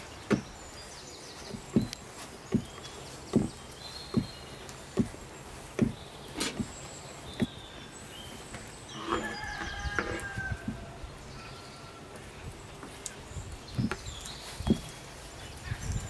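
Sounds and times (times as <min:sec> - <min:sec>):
rooster crowing: 0:09.0 - 0:11.0.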